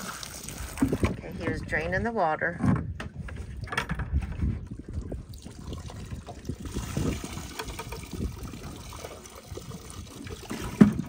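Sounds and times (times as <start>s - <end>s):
water pouring into lake: 0.0s - 1.3s, 4.5s - 11.0s.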